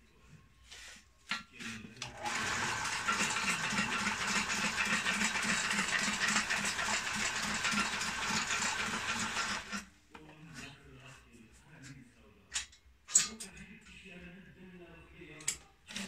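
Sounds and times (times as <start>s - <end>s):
stitching machine whirring and clattering: 2.0s - 9.8s.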